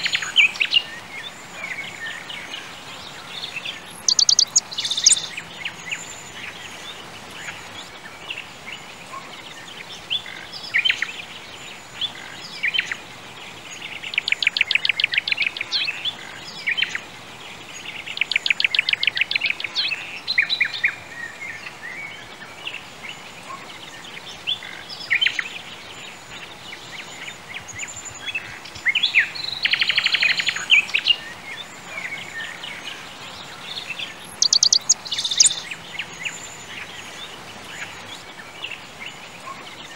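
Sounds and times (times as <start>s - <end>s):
faint background hiss: 0.0s - 39.9s
bird trilling rapidly: 4.0s - 5.3s, 34.4s - 35.7s
birds chirping and whistling: 4.0s - 6.1s, 33.6s - 36.7s.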